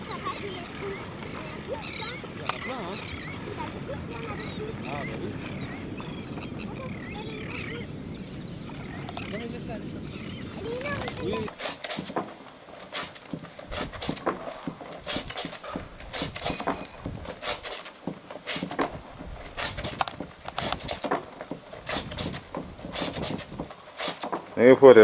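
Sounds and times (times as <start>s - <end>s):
wet cloth scrubbed in water: 12.9s - 24.4s.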